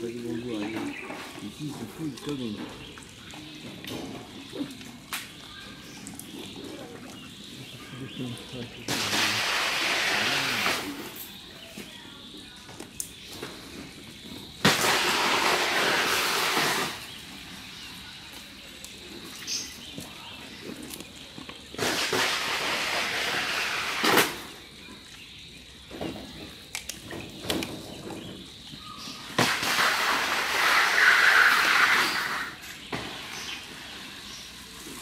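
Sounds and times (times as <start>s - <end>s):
bamboo snapping: 4.7s - 5.4s, 26.6s - 27.8s.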